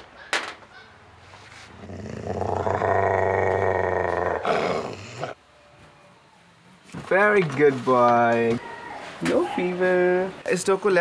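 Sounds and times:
dog growling: 1.8 - 5.4.

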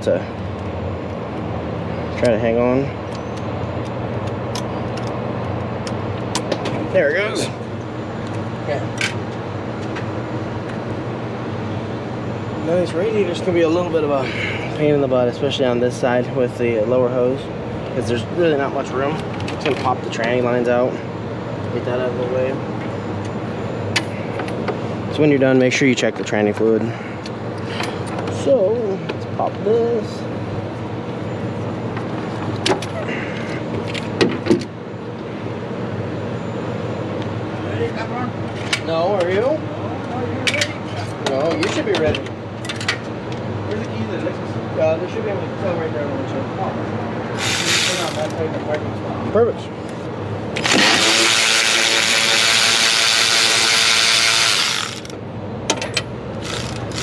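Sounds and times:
steady low hum: 0.0 - 41.2
power tool whining and hissing: 47.4 - 48.4, 50.6 - 55.2, 56.4 - 57.0.

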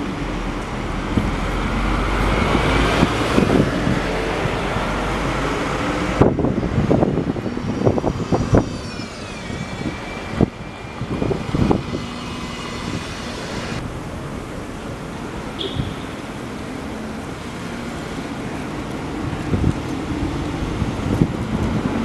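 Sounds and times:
large vehicle rumbling past: 0.0 - 22.0
high whine falling in pitch: 7.2 - 15.2.

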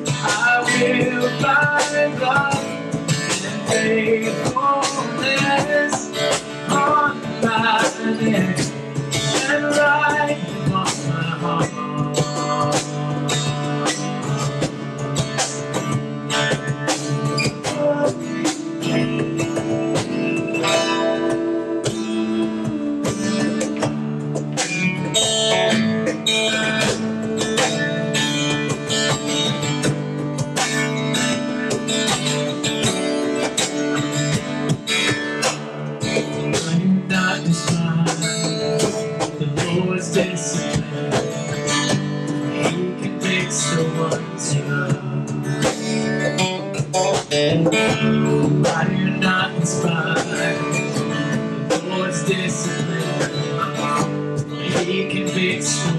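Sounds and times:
acoustic guitar strumming: 0.0 - 55.9.

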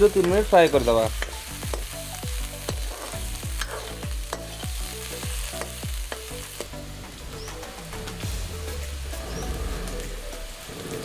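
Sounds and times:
vegetables sizzling in oil: 0.0 - 11.0
metal ladle scraping a pan: 2.6 - 4.1.

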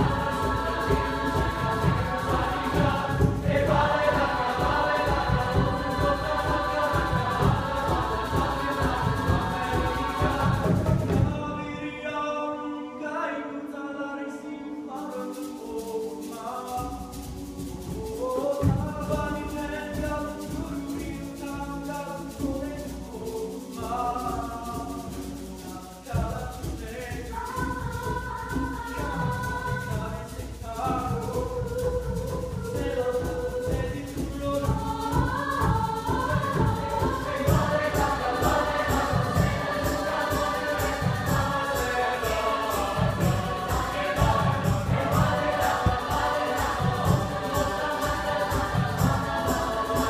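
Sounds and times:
choir singing: 0.0 - 50.0.

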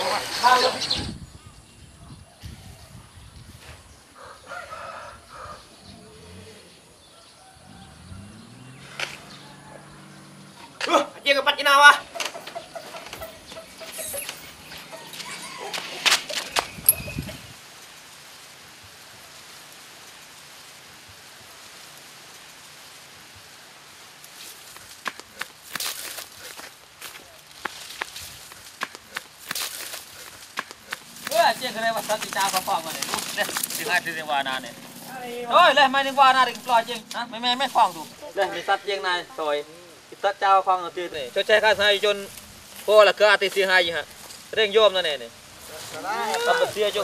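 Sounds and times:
rooster crowing: 4.2 - 6.2, 7.1 - 8.5, 9.3 - 10.4, 14.7 - 16.1
rustling through tall grass: 12.3 - 47.0
steady even hiss: 15.8 - 47.0.

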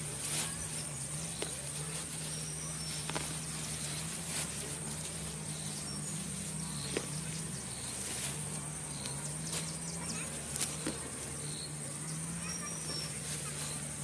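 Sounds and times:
sharp snaps of plants: 2.9 - 4.5, 8.9 - 11.3.

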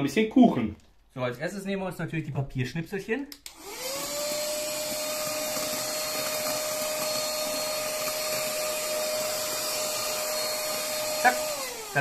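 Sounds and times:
mini vacuum cleaner whining: 3.5 - 12.0.

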